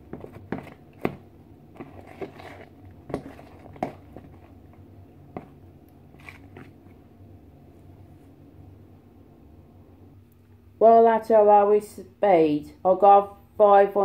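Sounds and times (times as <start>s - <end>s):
spoon stirring thick mixture: 0.0s - 7.1s.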